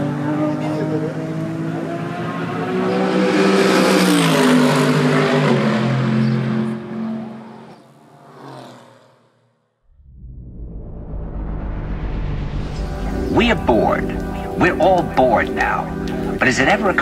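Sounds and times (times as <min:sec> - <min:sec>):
race car passing at speed: 0:00.0 - 0:09.6, 0:11.2 - 0:17.0.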